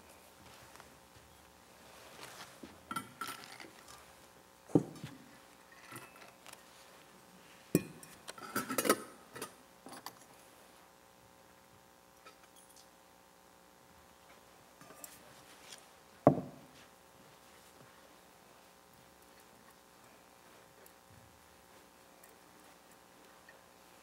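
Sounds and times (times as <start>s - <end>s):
sharp knocks: 16.3s - 16.7s.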